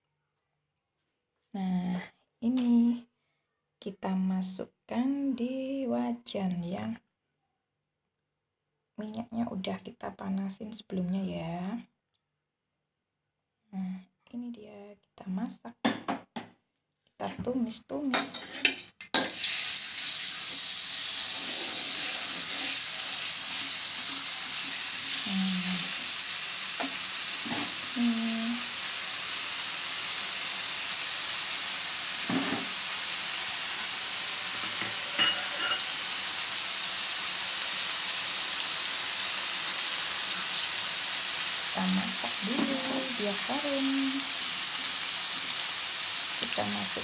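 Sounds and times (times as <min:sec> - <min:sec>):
metal spatula scraping pan: 0:18.2 - 0:19.6, 0:21.2 - 0:25.2, 0:34.5 - 0:36.1
spice paste sizzling in oil: 0:19.2 - 0:47.0.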